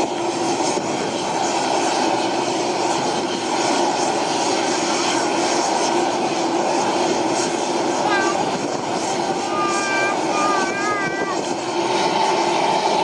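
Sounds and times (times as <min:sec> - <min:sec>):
helicopter turbine and rotor noise: 0:00.0 - 0:13.0
droning hum: 0:07.4 - 0:13.0.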